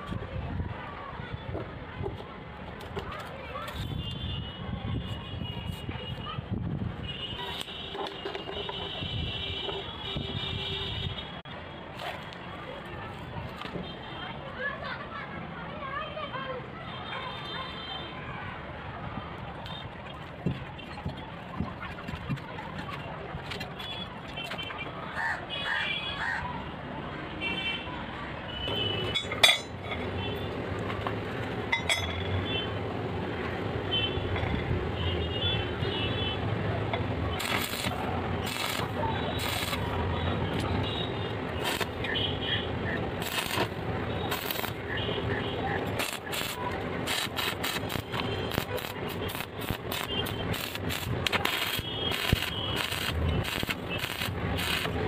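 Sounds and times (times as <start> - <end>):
steel rebar clinking: 29.1 - 30.1, 31.7 - 32.3
welding arc crackling: 36.5 - 55.0.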